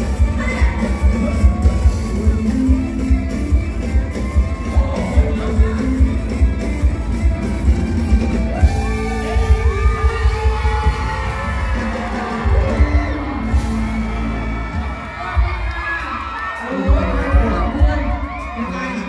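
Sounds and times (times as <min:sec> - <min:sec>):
heavy bass beat: 0:00.0 - 0:18.6
live music over loudspeakers: 0:00.0 - 0:19.0
person singing: 0:00.1 - 0:06.6.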